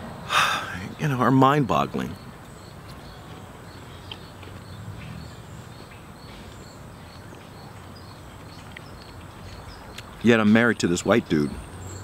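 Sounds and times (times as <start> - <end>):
insect chirping: 0.5 - 12.0
low outdoor rumble: 2.9 - 11.6.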